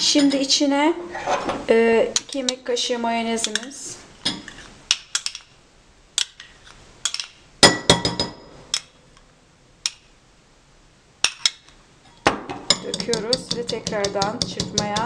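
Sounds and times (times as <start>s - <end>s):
metal spoon clinking against glass bowl: 12.7s - 15.0s.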